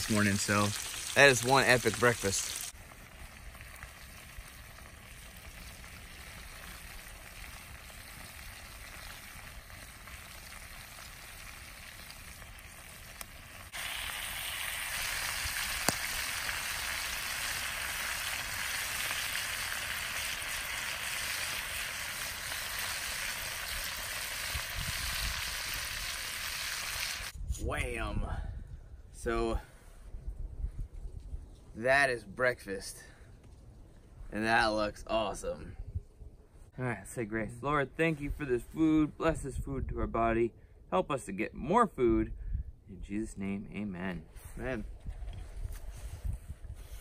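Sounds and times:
fat sizzling and bubbling: 0.0s - 27.4s.

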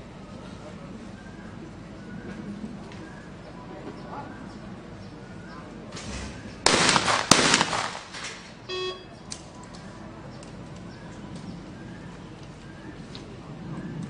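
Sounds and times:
shotgun shots with echo: 6.0s - 8.5s
short electronic beep: 8.7s - 9.1s.

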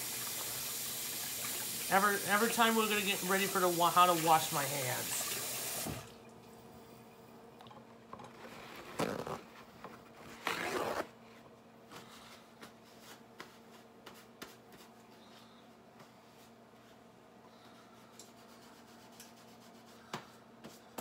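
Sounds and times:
tap water running: 0.0s - 6.5s
ripping rustles: 8.3s - 11.1s.

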